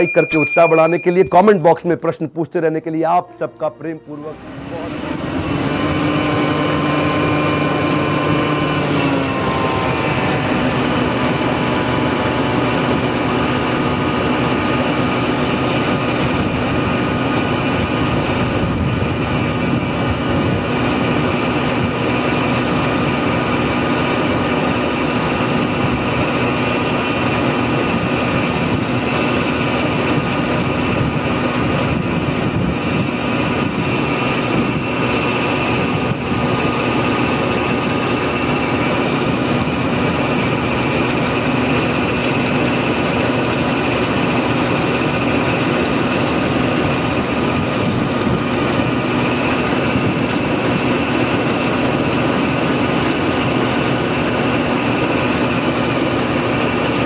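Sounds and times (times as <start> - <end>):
combine harvester running: 3.4 - 57.0.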